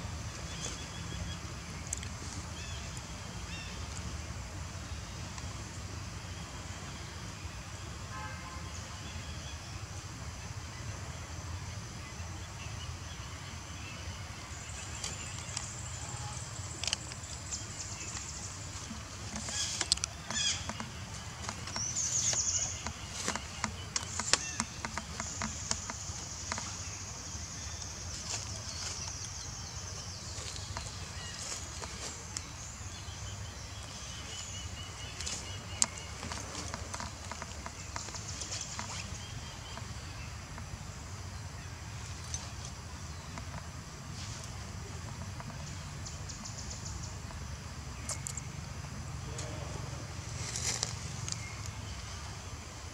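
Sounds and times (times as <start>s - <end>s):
high chirping calls: 14.8s - 38.3s.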